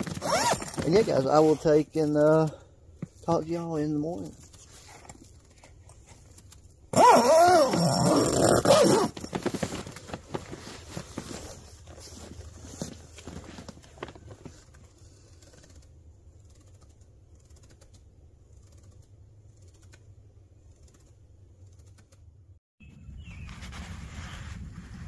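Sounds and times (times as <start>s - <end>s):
fabric rustling and clicks: 8.9s - 15.9s
bird chirping: 22.8s - 23.6s.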